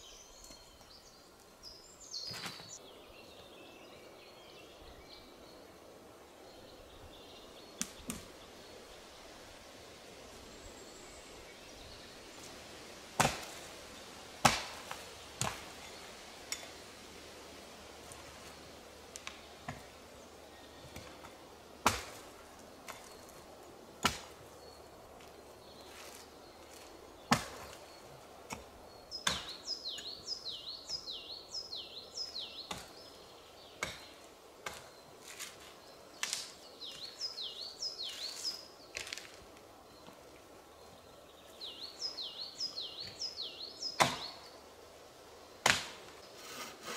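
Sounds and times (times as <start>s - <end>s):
axe chopping wood: 13.2s - 13.6s, 14.4s - 15.7s, 20.9s - 22.3s, 24.0s - 24.4s, 27.3s - 27.8s, 28.5s - 29.6s, 33.8s - 35.5s, 44.0s - 44.4s, 45.6s - 46.1s.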